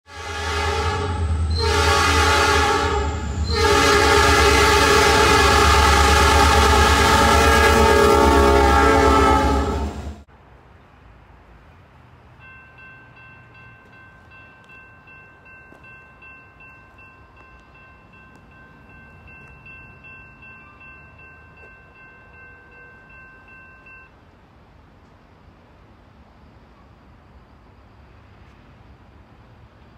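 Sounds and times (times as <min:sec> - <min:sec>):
distant locomotive air horn: 0:00.1 - 0:10.2.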